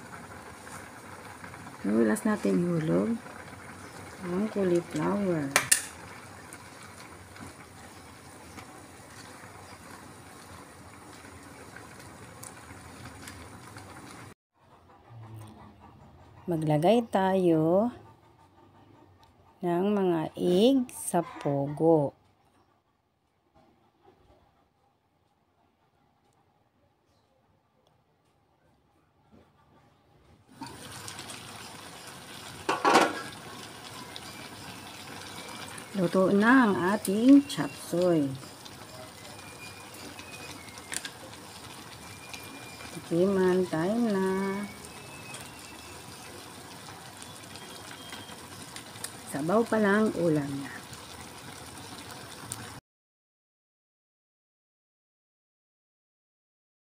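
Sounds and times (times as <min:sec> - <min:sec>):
food bubbling in a wok: 0:00.0 - 0:14.4, 0:30.5 - 0:52.8
sauce simmering hiss: 0:00.0 - 0:14.4, 0:30.5 - 0:52.8.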